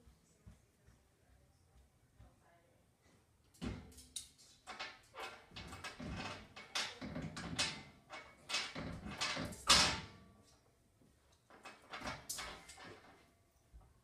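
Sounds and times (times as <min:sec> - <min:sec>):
dog scratching at metal gate: 0:04.0 - 0:10.1.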